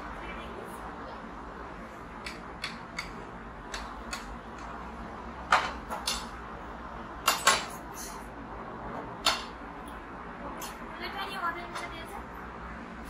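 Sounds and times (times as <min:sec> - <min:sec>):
steady background noise: 0:00.0 - 0:13.0
dishes and cutlery clinking: 0:05.5 - 0:06.3, 0:07.2 - 0:08.3.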